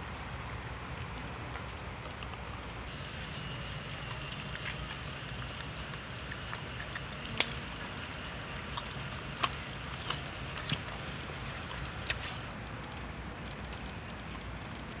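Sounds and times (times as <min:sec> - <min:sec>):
hands kneading raw meat: 0:03.2 - 0:13.0.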